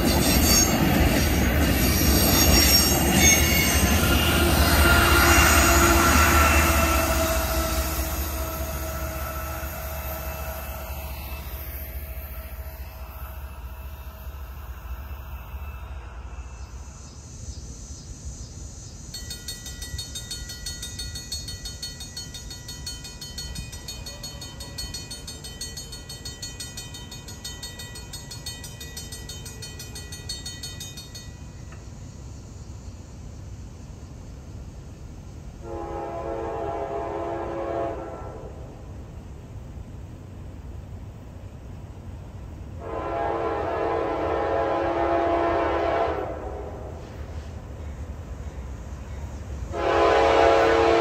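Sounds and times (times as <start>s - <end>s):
crossing bell ringing: 0.0s - 15.6s, 19.1s - 32.0s
freight train rumbling: 0.0s - 51.0s.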